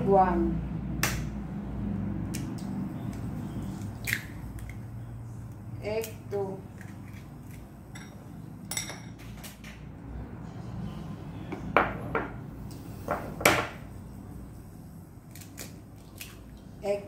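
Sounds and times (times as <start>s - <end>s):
porcelain bowls clinking: 7.9s - 9.6s.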